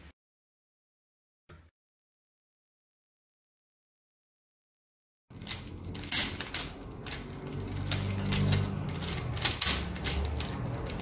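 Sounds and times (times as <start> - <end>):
plastic puzzle cube clicking: 5.4 - 11.0.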